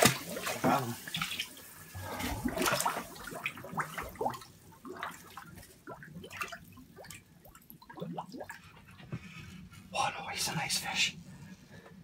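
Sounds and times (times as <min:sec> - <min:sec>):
water splashing and gurgling: 0:00.0 - 0:08.9.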